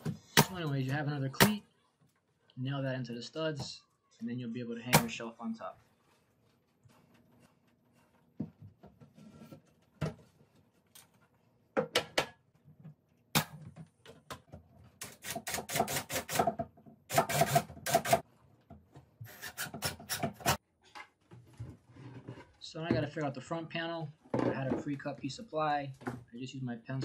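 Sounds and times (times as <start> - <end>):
pneumatic nail gun firing: 15.0 - 16.5, 17.1 - 18.2.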